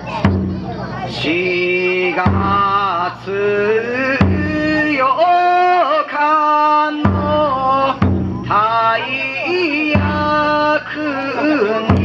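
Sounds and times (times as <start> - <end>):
taiko drum strikes: 0.0 - 5.1, 7.0 - 10.7, 11.8 - 12.0
person singing long ornamented notes: 1.2 - 12.0.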